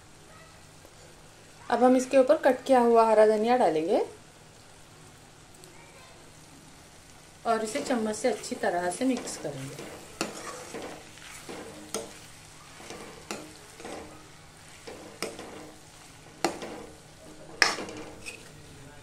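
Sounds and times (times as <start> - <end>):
food sizzling: 0.0 - 19.0
spoon scraping metal pan: 7.7 - 18.6.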